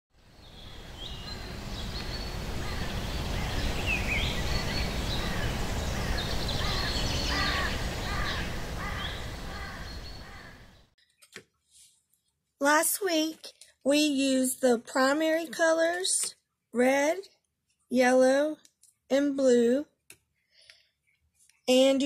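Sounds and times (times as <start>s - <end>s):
birds chirping and calling: 0.4s - 10.9s.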